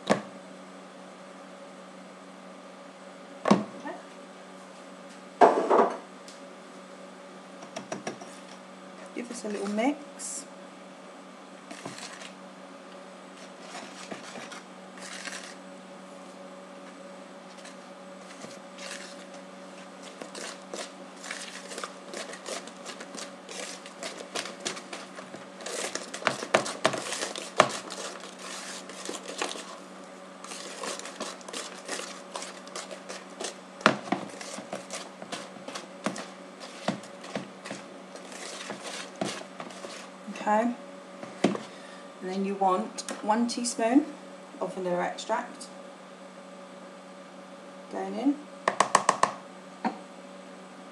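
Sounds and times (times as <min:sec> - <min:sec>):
steady low hum: 0:00.0 - 0:48.7
whisk scraping plastic bowl: 0:11.7 - 0:12.4, 0:13.4 - 0:15.6, 0:17.5 - 0:40.2.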